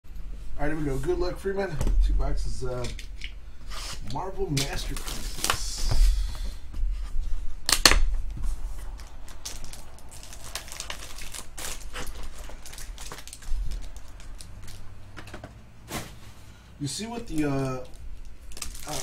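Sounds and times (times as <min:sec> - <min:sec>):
plastic shrink wrap crinkling: 0:04.1 - 0:05.9, 0:07.6 - 0:15.2, 0:16.8 - 0:19.0
card packs clicking: 0:08.8 - 0:15.5.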